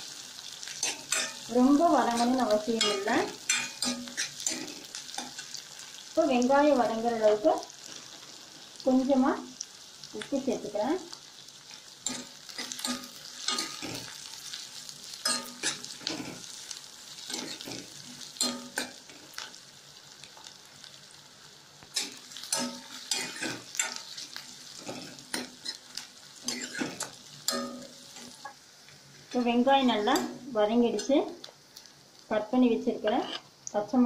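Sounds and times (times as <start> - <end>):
onions sizzling in oil: 0.0 - 34.0
metal ladle scraping a pan: 22.0 - 25.8, 26.4 - 28.4.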